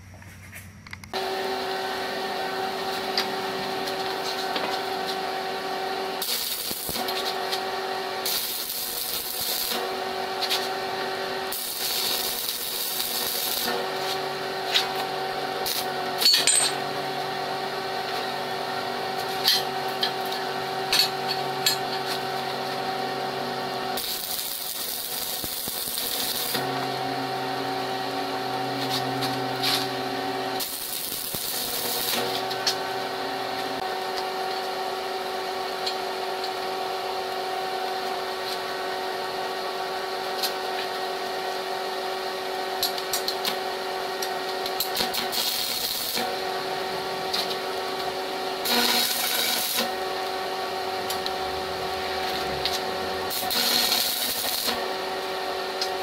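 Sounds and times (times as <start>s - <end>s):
welding arc crackling: 6.2s - 16.7s, 21.2s - 26.9s, 28.7s - 32.9s, 42.8s - 56.0s
steady hum: 8.2s - 34.1s, 44.8s - 55.1s.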